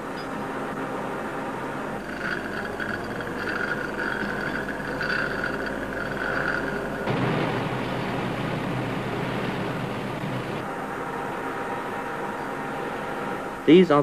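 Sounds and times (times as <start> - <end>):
heavy machinery din: 1.8 - 12.7
high wavering squeal: 1.9 - 7.2.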